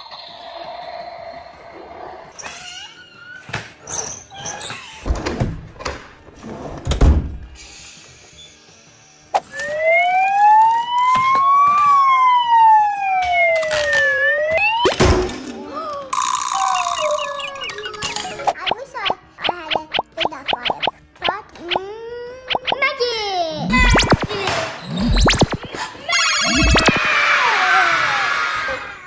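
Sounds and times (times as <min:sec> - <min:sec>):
toy siren wailing: 0:09.5 - 0:15.0, 0:16.4 - 0:18.5, 0:25.0 - 0:27.1.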